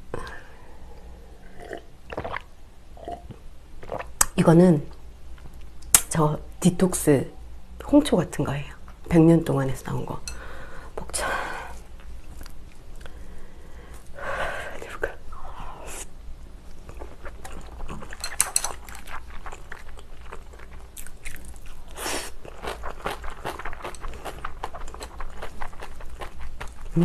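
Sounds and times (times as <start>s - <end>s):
moist chewing crunches: 16.7s - 27.0s.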